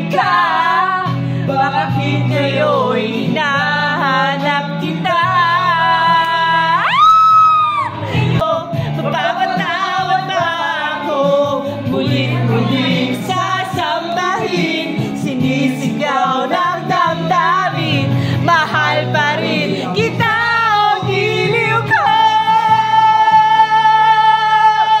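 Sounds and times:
karaoke backing track: 0:00.0 - 0:25.0
man singing into microphone: 0:00.0 - 0:25.0.

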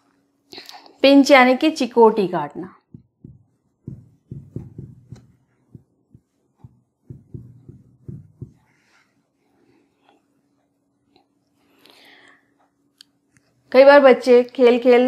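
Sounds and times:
marker tapping on whiteboard: 0:02.9 - 0:08.7
marker scratching: 0:03.0 - 0:08.9.

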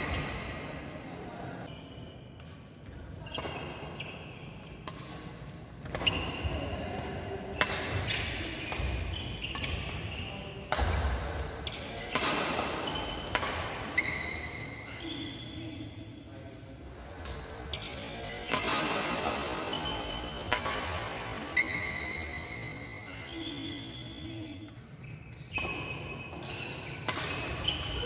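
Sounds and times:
sneakers squeaking on wooden floor: 0:03.2 - 0:04.7, 0:05.9 - 0:06.9, 0:07.9 - 0:11.0, 0:12.8 - 0:15.4, 0:21.3 - 0:24.4, 0:25.0 - 0:28.0
racket striking shuttlecock: 0:04.8 - 0:06.4, 0:07.6 - 0:10.0, 0:10.6 - 0:14.6, 0:18.4 - 0:22.0, 0:26.5 - 0:28.0.

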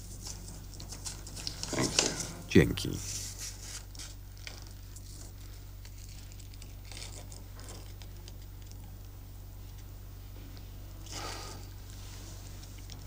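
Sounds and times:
room tone hum: 0:00.0 - 0:13.0
paper wrapper rustling: 0:00.1 - 0:02.3, 0:02.9 - 0:08.8.

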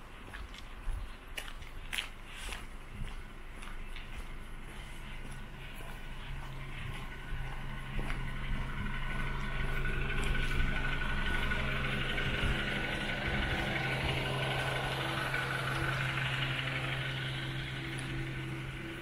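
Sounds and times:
machine humming with hiss: 0:05.6 - 0:19.0.

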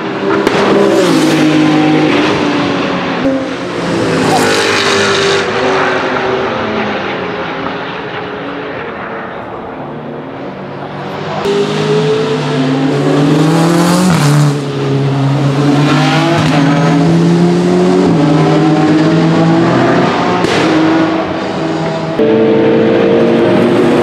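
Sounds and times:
race car engine accelerating: 0:10.8 - 0:24.0.

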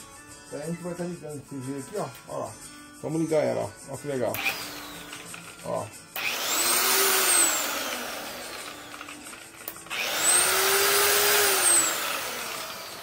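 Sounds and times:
polisher motor whine: 0:04.4 - 0:05.3, 0:06.2 - 0:13.0.

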